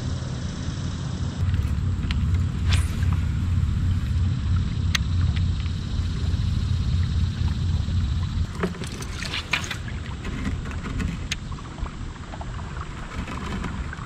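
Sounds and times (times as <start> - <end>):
steady low rumble: 0.0 - 14.0
water splashes: 1.4 - 14.0.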